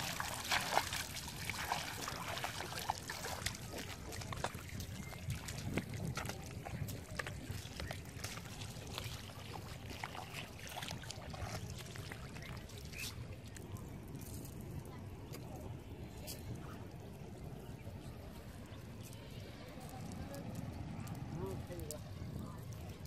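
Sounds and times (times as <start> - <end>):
water dripping from net: 0.0 - 13.7
footsteps splashing in water: 0.0 - 15.5
footsteps squelching in mud: 0.0 - 16.4.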